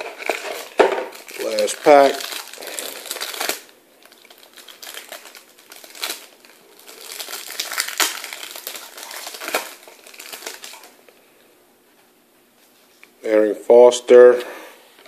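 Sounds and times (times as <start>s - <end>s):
cards and wrapper rustling: 0.0s - 11.0s.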